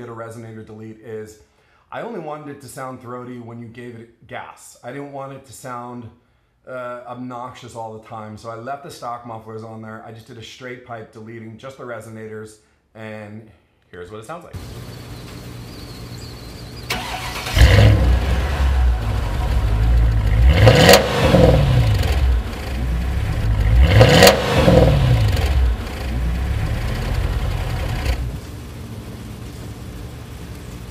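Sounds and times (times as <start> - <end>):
car engine starting and revving: 16.2 - 28.8.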